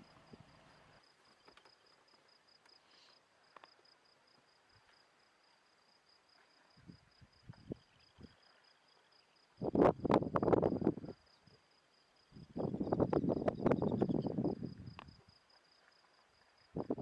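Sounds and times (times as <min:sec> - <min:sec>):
insect chirping high trill: 0:07.6 - 0:15.1.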